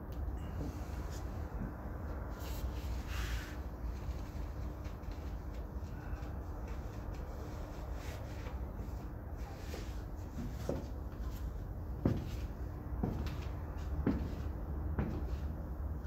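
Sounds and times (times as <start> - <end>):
steady low hum: 0.0 - 16.0
high heels tapping on tiles: 13.0 - 15.5.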